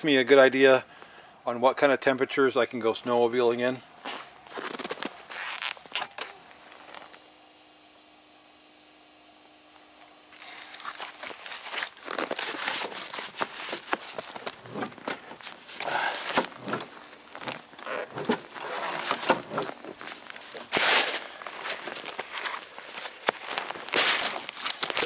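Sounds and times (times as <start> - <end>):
footsteps crunching in snow: 4.0 - 7.3, 10.3 - 25.0.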